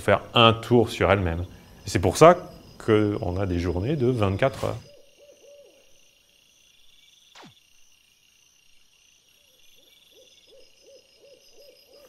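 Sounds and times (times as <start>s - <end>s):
night insects chirring: 0.0s - 12.0s
owl hoots: 4.6s - 6.0s, 9.8s - 12.0s.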